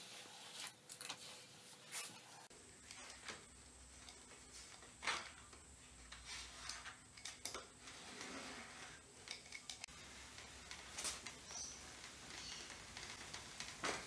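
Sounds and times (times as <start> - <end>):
roller scratchy rolling strokes: 7.8 - 14.0
small clicks and ticks: 9.2 - 14.0.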